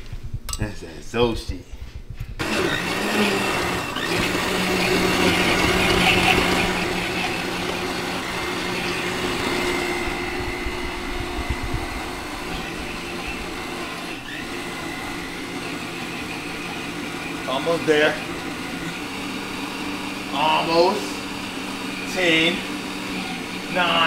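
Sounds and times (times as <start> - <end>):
blender motor whirring: 2.3 - 24.0.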